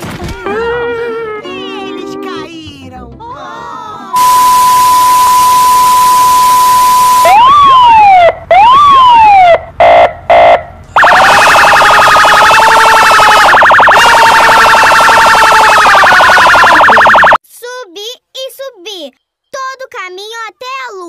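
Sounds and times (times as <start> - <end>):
siren-like whoops: 4.2 - 9.6, 11.0 - 17.4
test-pattern beep: 11.0 - 17.4.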